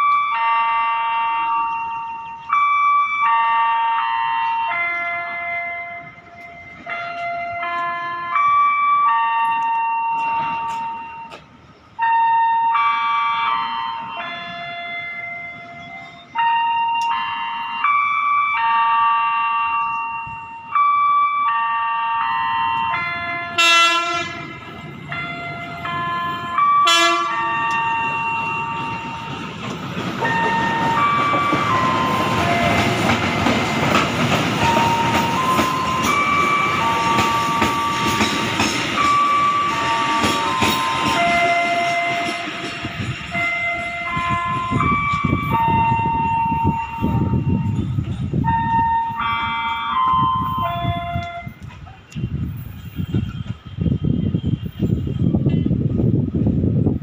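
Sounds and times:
electric locomotive passing: 0.0 - 57.0
train horn blasts: 21.5 - 29.3, 43.4 - 55.4.

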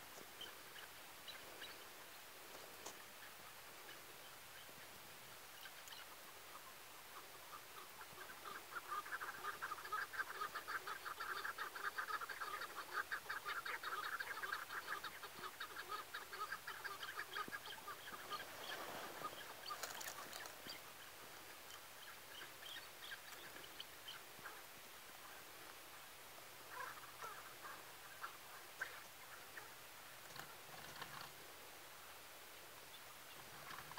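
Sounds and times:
partridge clucking calls: 0.0 - 25.4, 26.7 - 31.4, 32.9 - 33.9.

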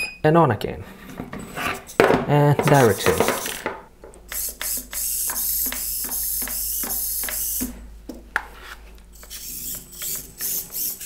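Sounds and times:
small motor whining: 4.3 - 7.7, 9.2 - 11.0.

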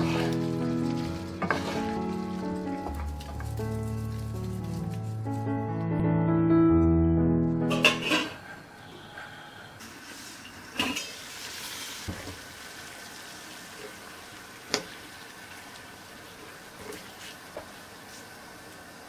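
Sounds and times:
metal lid and pan clinking: 7.7 - 8.4
water boiling in pot: 9.8 - 19.0.

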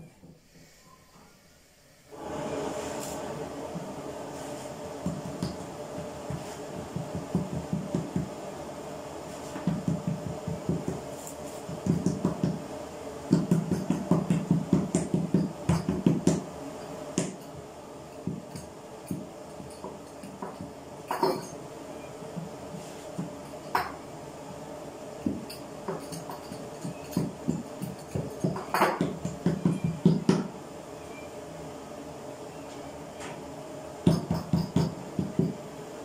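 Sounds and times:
hands patting dough: 5.0 - 8.4, 9.3 - 12.7, 13.3 - 16.5.

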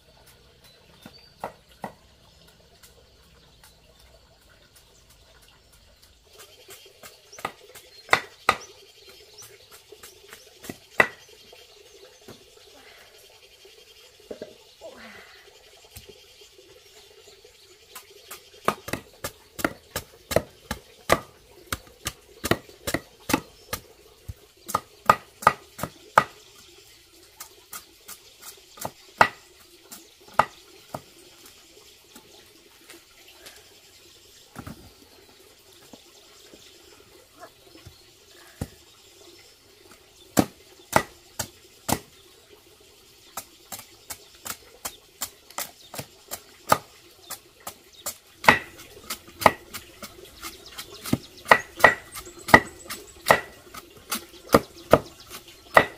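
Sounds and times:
knife striking root on board: 7.4 - 8.6, 48.4 - 48.8, 51.0 - 53.6.

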